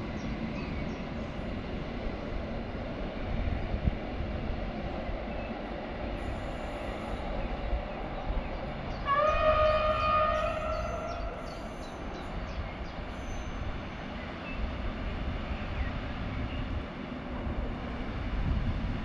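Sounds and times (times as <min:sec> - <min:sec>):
low rumble of train: 0:00.0 - 0:19.0
train horn blast: 0:09.0 - 0:12.0.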